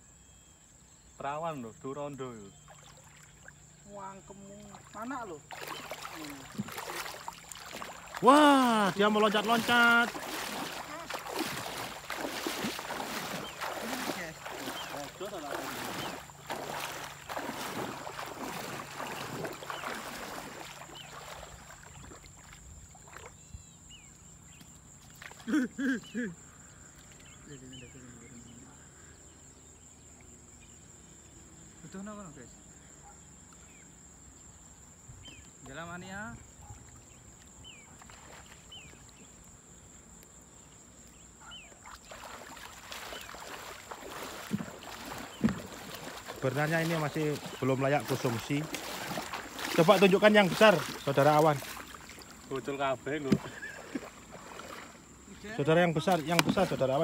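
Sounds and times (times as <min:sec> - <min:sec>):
thin chirps: 0:02.1 - 0:22.2
water splashing from wading: 0:02.4 - 0:23.5, 0:36.8 - 0:39.4, 0:41.4 - 0:57.0.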